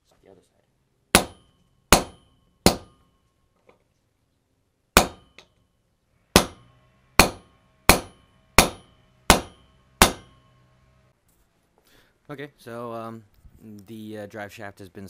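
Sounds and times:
hammer striking metal socket: 5.0 - 5.7.

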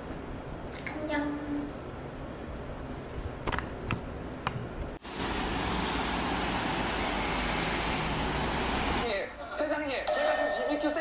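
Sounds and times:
rushing outdoor noise: 5.0 - 9.1.

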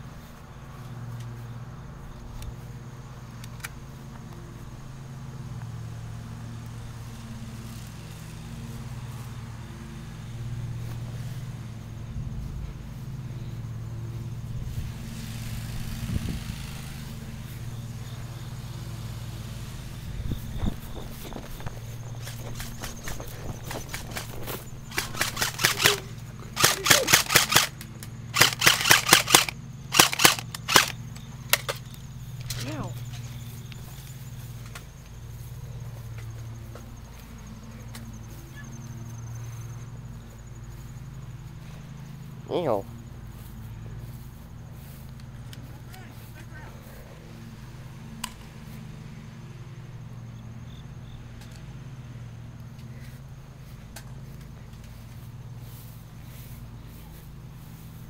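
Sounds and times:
low engine drone: 0.0 - 58.0
airsoft gun bursts: 22.2 - 31.8
sharp click: 26.6 - 32.6.

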